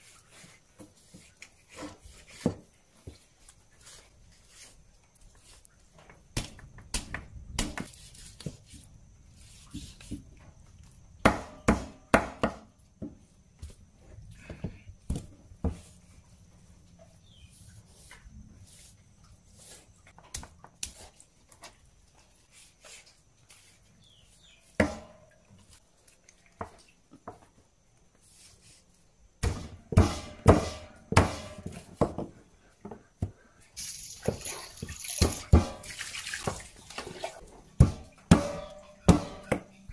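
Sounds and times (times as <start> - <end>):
knife chopping meat and bone: 11.2 - 12.7, 37.8 - 39.8
water splashing on board: 33.8 - 38.0.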